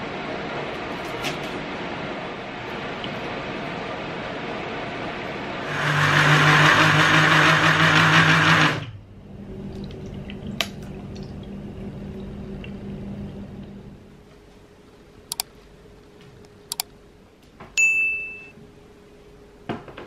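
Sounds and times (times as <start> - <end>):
blender motor running: 5.6 - 9.0
sharp clink: 17.8 - 18.5.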